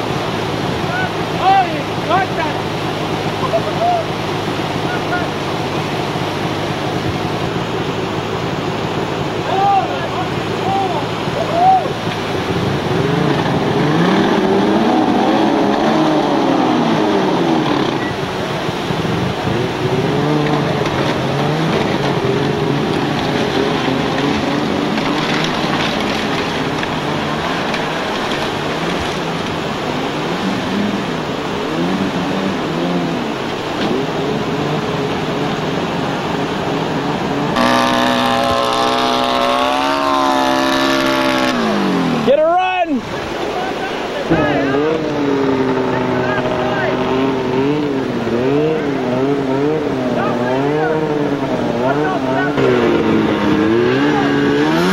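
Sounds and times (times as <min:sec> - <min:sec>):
river water rushing: 0:00.0 - 0:54.9
engine revving: 0:12.0 - 0:42.4, 0:44.3 - 0:54.9.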